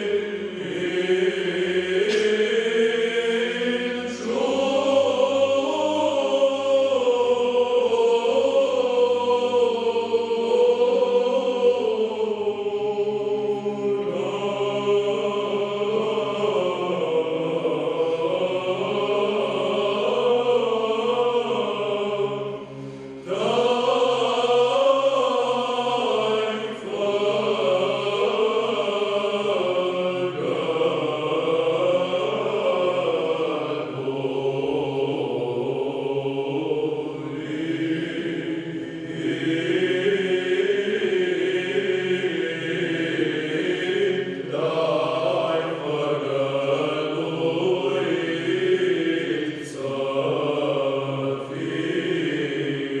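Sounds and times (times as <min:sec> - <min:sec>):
male choir chanting a cappella: 0:00.0 - 0:53.0.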